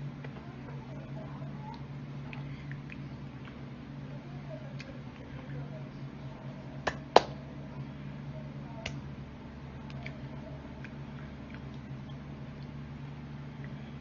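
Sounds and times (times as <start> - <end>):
steady low hum: 0.0 - 14.0
hands tapping together: 6.8 - 7.4.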